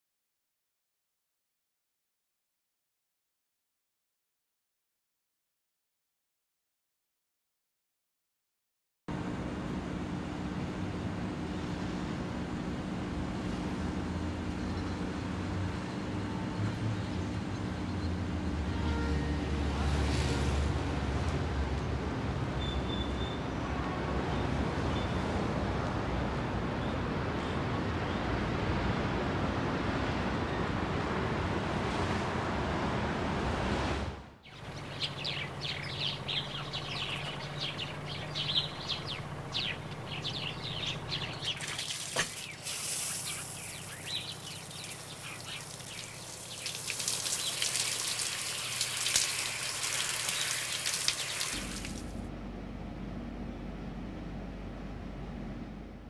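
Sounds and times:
street traffic rumble: 9.1s - 56.0s
birds chirping: 34.4s - 51.9s
running water hiss: 40.8s - 52.2s.

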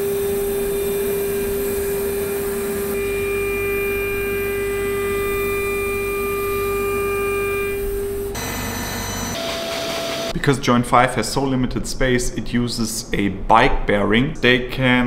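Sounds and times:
router spindle whining: 0.0s - 10.3s
higher machine tones: 0.0s - 10.4s.

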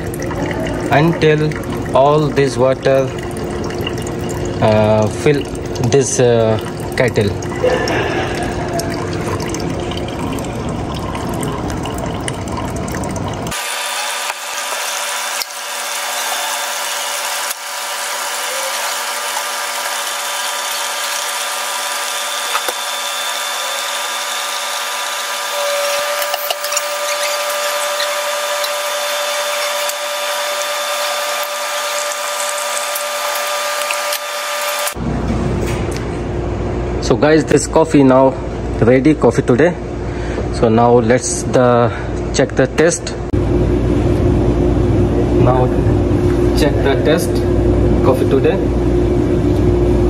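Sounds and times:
coffee pouring hiss: 0.0s - 35.0s
coffee machine whine: 0.0s - 37.4s, 43.3s - 50.0s.

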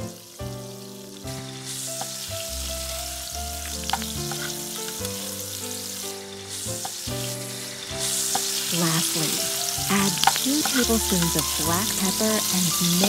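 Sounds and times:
meat sizzling in a frying pan: 0.0s - 13.0s
tongs clicking against pan: 9.9s - 11.4s.

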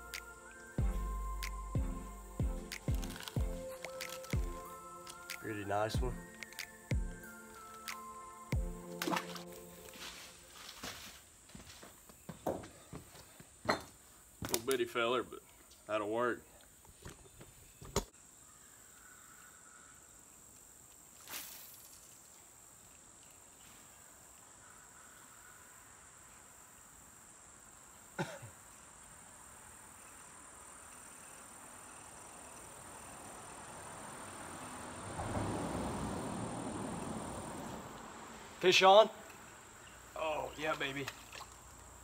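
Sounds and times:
insects droning: 0.0s - 42.0s
rustling: 9.0s - 12.1s.

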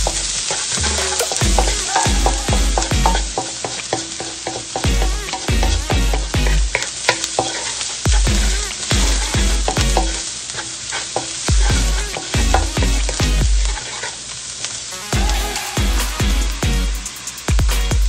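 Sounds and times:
electronic bass beat music: 0.0s - 3.3s, 4.9s - 6.7s, 8.1s - 10.2s, 11.5s - 13.6s, 15.2s - 18.0s
wooden spatula scraping wok: 0.0s - 14.3s
garlic sizzling in oil: 0.0s - 18.0s.

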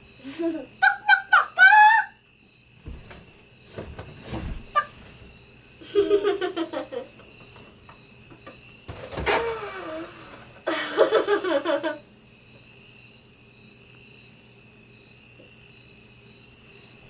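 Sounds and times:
soft thumps onto a mattress: 2.8s - 5.4s.

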